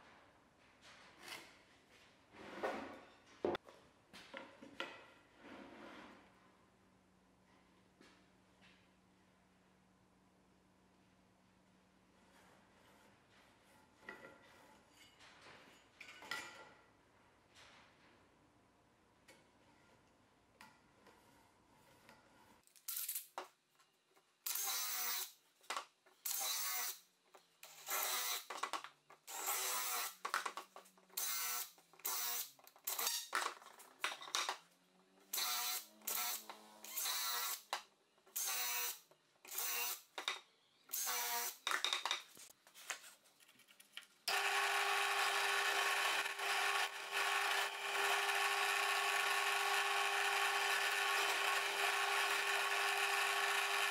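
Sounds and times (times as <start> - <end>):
cordless drill whirring: 44.3 - 53.9
drill press boring into wood: 44.3 - 53.9.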